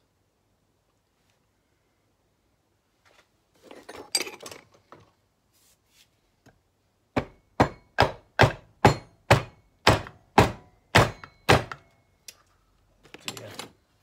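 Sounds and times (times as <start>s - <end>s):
hammer tapping on metal: 7.2s - 11.8s.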